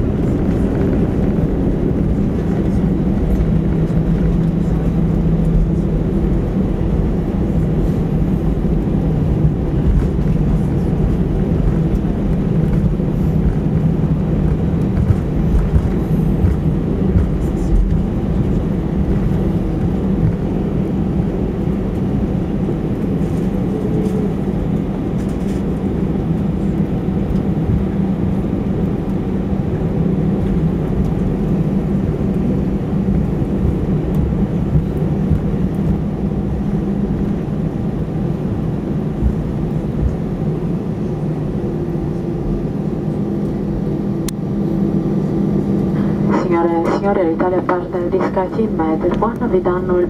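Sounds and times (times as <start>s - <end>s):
airplane cabin engine hum: 0.0s - 50.0s.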